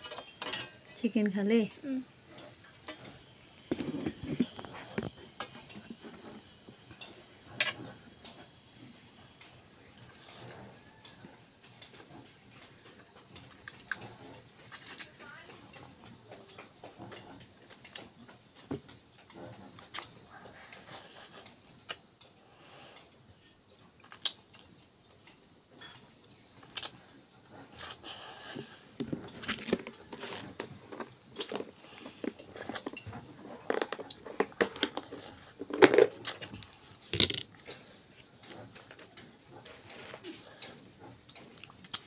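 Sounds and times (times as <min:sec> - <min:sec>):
cutlery clicking on steel plate: 0:00.0 - 0:00.8
child slurping and chewing noodles: 0:01.8 - 0:15.2, 0:15.9 - 0:24.8, 0:26.5 - 0:42.0.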